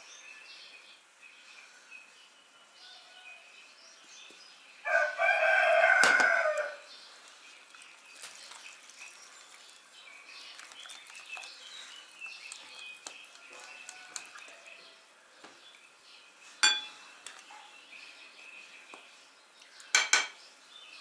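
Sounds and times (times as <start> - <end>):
whisk stirring batter in bowl: 7.1 - 14.8.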